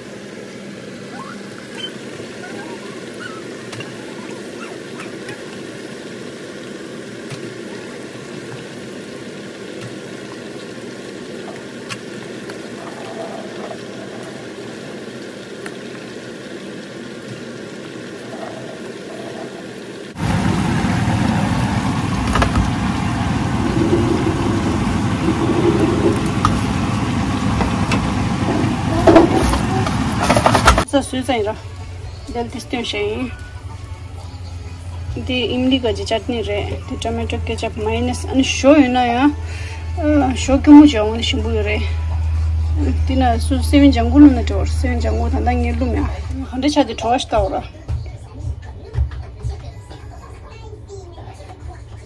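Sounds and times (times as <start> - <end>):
food deep-frying in oil: 0.0 - 47.5
low hum: 20.1 - 47.6.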